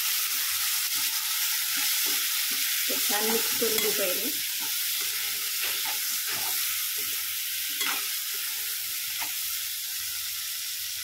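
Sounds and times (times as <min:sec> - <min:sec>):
food sizzling in oil: 0:00.0 - 0:11.0
spatula scraping pan: 0:00.8 - 0:09.4.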